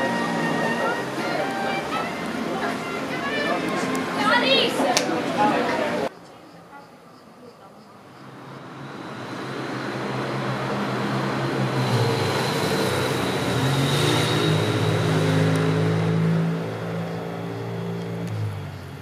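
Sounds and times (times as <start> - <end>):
vehicle engine passing by: 8.2 - 19.0.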